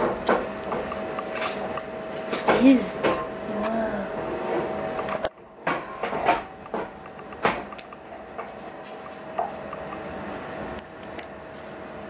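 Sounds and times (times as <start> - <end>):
faint steady hum: 0.0 - 12.0
eggshell clicks and taps: 9.4 - 11.3.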